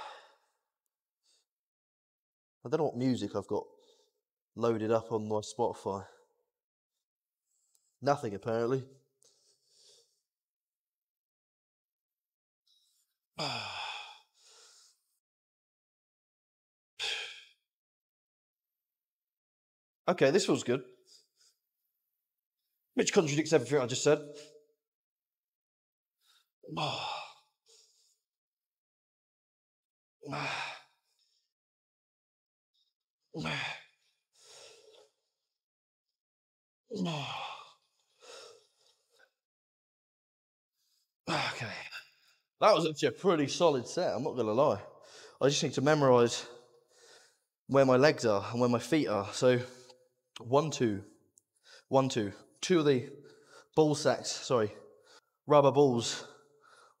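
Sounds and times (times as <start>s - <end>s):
man breathing: 9.2s - 10.3s, 12.8s - 15.2s, 33.5s - 35.2s, 37.5s - 39.3s, 45.0s - 45.4s, 46.6s - 47.5s, 53.2s - 53.8s, 56.3s - 57.0s
man exhaling with grunt: 13.4s - 14.2s, 26.7s - 27.3s.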